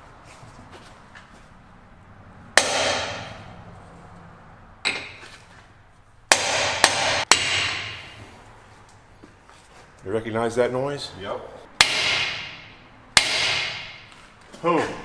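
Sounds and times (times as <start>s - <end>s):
hammer striking metal: 2.6s - 3.5s, 6.3s - 8.3s, 11.8s - 14.1s.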